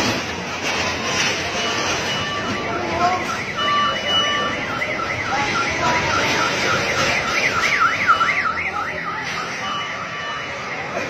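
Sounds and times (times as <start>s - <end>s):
street noise: 0.0s - 11.0s
electronic siren sweeping: 1.5s - 10.8s.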